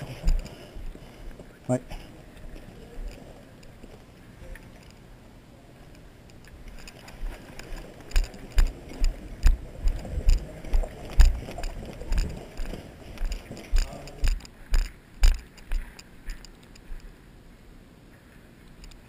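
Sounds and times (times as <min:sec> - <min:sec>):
rattle of carried gear: 0:00.0 - 0:05.1, 0:06.2 - 0:17.1
running footsteps on pavement: 0:08.1 - 0:16.4.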